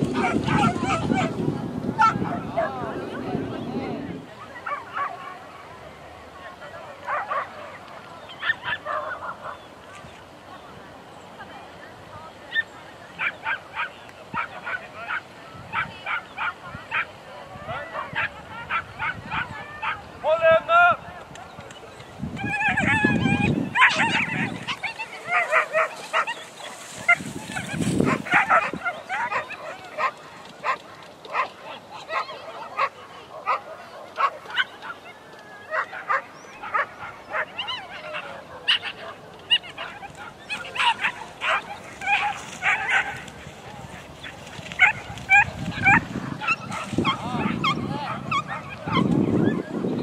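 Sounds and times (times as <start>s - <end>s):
dogs barking and yelping: 0.0s - 2.7s, 8.3s - 9.7s, 17.7s - 20.0s, 22.3s - 50.0s.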